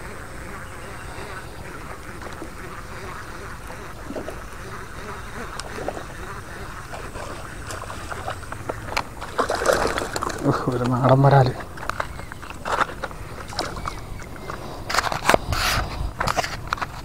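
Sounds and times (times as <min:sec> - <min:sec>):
fish splashing at surface: 0:06.8 - 0:10.9, 0:11.6 - 0:15.3.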